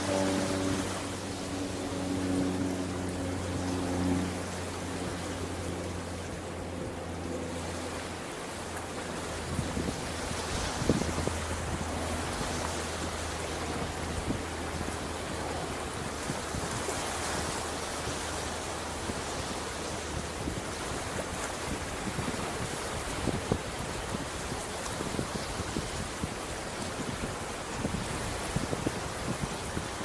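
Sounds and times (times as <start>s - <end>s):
low hum: 0.0s - 21.2s
ocean surf washing: 0.0s - 30.0s.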